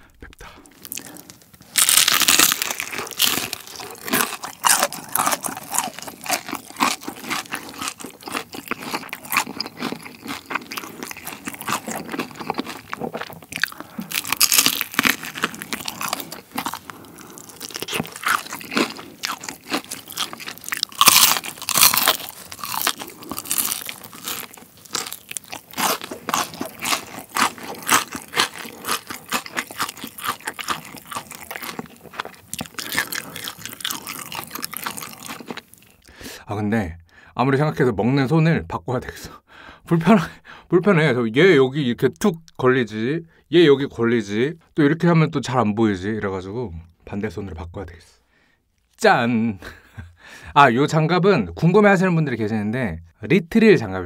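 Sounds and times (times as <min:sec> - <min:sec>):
crunching fried chicken: 0:00.6 - 0:36.1.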